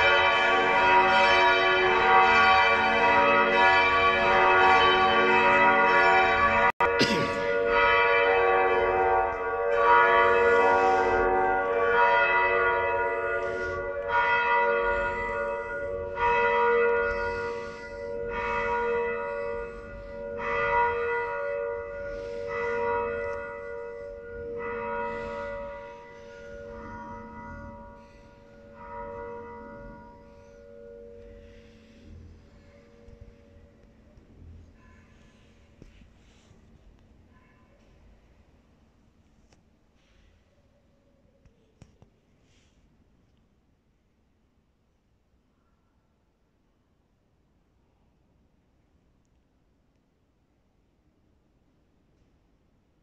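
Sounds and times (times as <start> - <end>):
church bells ringing: 0.0 - 36.4.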